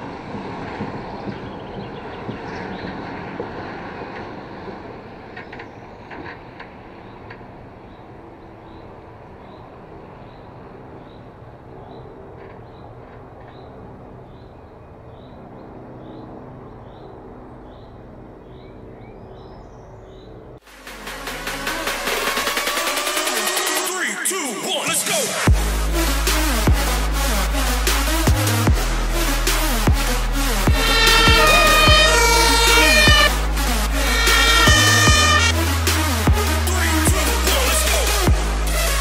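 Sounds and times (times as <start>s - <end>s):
truck diesel engine running: 25.5s - 39.0s
short high chirp: 30.8s - 33.4s.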